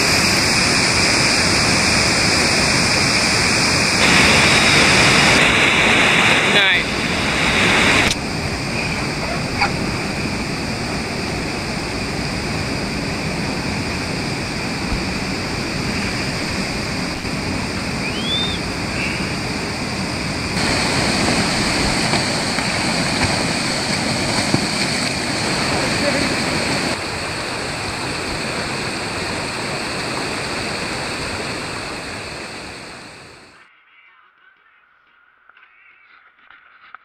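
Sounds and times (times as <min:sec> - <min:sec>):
river water rushing over rocks: 0:00.0 - 0:33.5
high rising chirp: 0:17.9 - 0:19.4.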